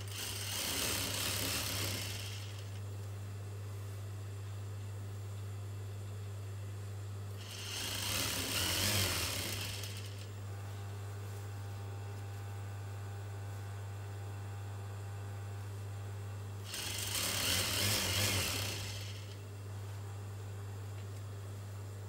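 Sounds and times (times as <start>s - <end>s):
sewing machine motor humming: 0.0s - 2.8s, 7.4s - 10.4s, 16.6s - 19.4s
sewing machine stitching fabric: 0.0s - 2.8s, 7.4s - 10.3s, 16.7s - 19.4s.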